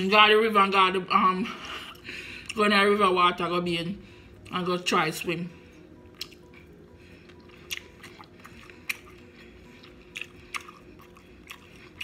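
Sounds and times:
chewing sausage: 0:06.0 - 0:12.0.

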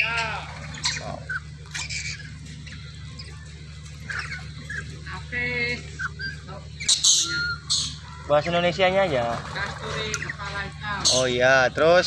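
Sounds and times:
longer pitched bird call: 0:00.0 - 0:08.9
low steady hum: 0:00.0 - 0:12.0
parrots squeaking and chirping: 0:00.0 - 0:12.0.

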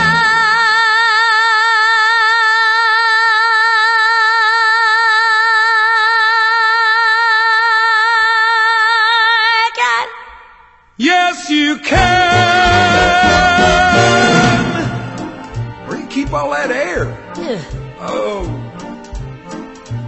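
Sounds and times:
backing music: 0:11.9 - 0:20.0.

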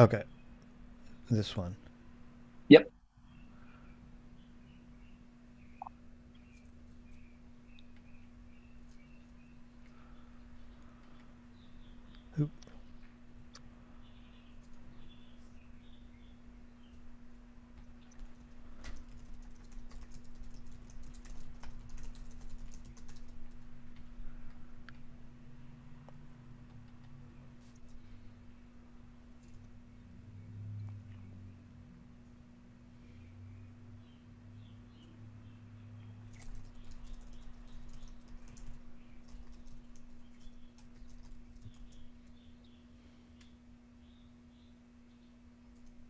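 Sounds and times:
low electrical hum: 0:00.0 - 0:46.0
typing on computer keyboard: 0:18.0 - 0:24.0, 0:36.3 - 0:42.1.

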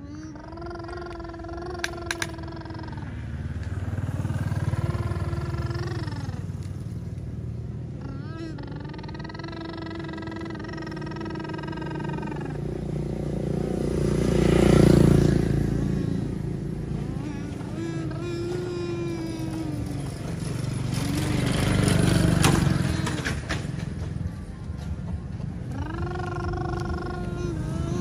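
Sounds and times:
engine rumbling: 0:00.0 - 0:28.0
vehicle passing by: 0:00.0 - 0:28.0.

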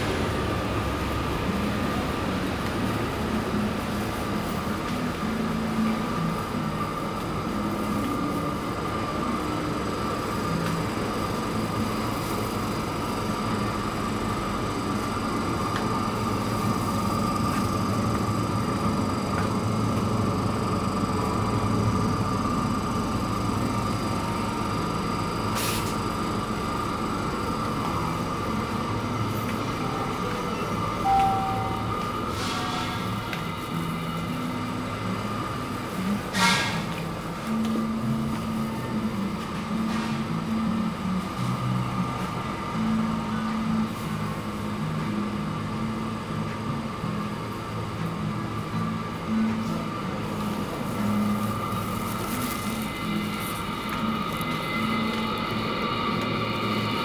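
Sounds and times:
refrigeration hum: 0:00.0 - 0:57.0
short beep: 0:31.0 - 0:32.0.

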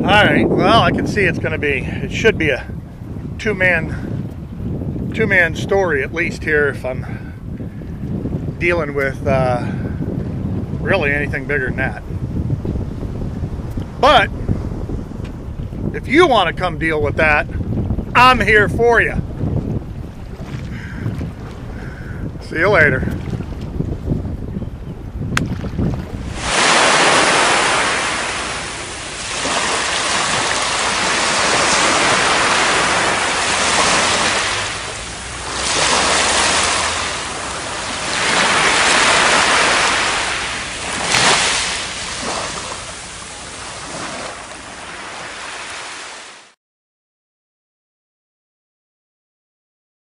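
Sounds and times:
wind on microphone: 0:00.0 - 0:46.3
sea water splashing: 0:25.4 - 0:46.5.

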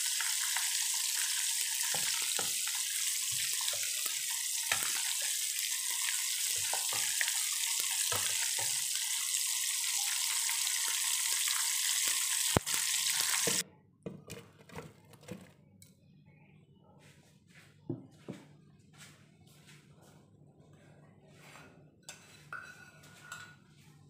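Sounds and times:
oil sizzling in frying pan: 0:00.0 - 0:13.6.

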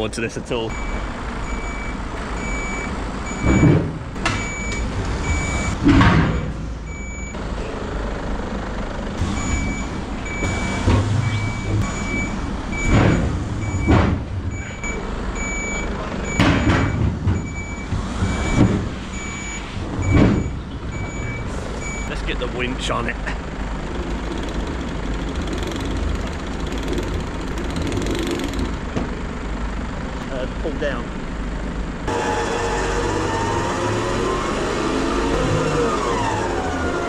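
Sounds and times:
diesel truck engine running: 0:00.0 - 0:37.0
truck reversing alarm beeping: 0:00.6 - 0:07.4, 0:09.2 - 0:23.0.

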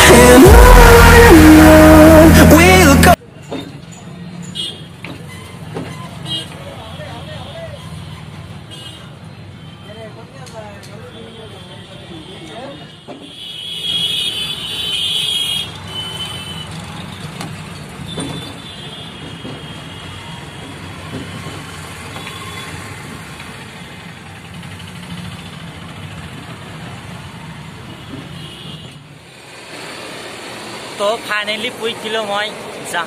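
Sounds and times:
high-pitched horn: 0:00.0 - 0:03.2
street traffic: 0:00.0 - 0:33.0.

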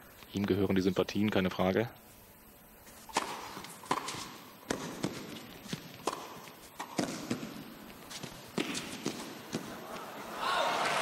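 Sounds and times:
tennis racket strikes: 0:03.0 - 0:09.8
tennis ball bouncing: 0:03.1 - 0:09.8.

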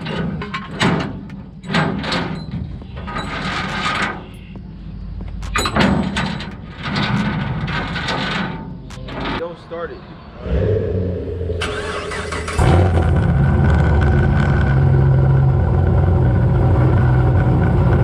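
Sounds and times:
metallic clicks and knocks: 0:00.0 - 0:04.4
steady low hum: 0:08.8 - 0:17.0
voices talking: 0:08.9 - 0:12.6.

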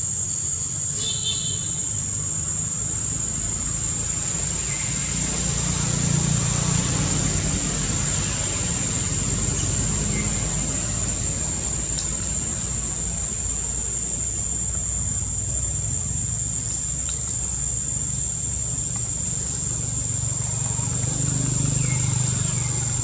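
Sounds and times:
insects droning: 0:00.0 - 0:23.0.

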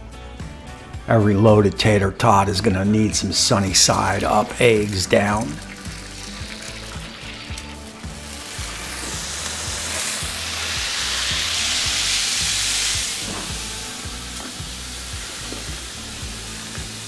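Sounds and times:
eggs sizzling on a griddle: 0:04.0 - 0:17.0.

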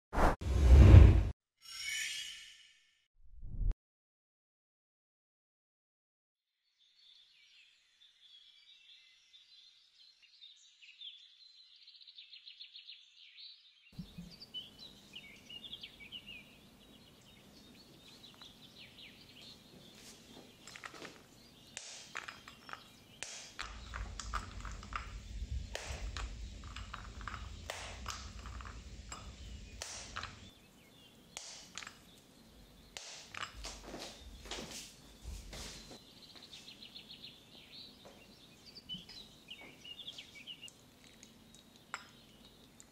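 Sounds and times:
small birds chirping: 0:06.8 - 0:42.9
outdoor background noise: 0:14.0 - 0:42.9
chocolate clicking in glass bowl: 0:21.7 - 0:30.5
low rumble: 0:23.6 - 0:30.5.

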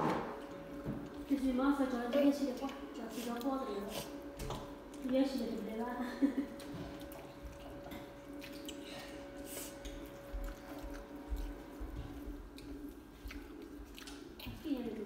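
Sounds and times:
chewing and mouth noises: 0:06.5 - 0:15.0.

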